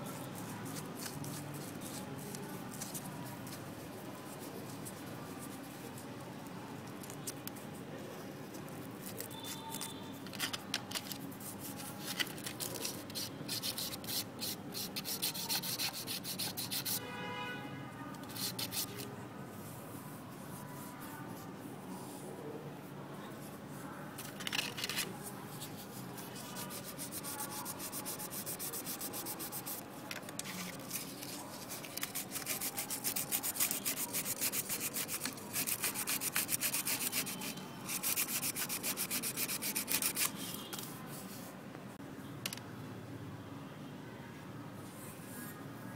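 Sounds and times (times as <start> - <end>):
sandpaper rubbing on cork: 11.3 - 17.0, 18.2 - 19.0, 25.5 - 40.4.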